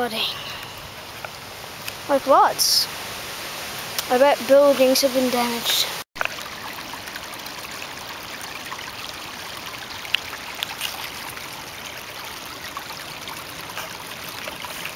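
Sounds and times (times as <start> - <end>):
water rushing in stream: 0.0 - 14.9.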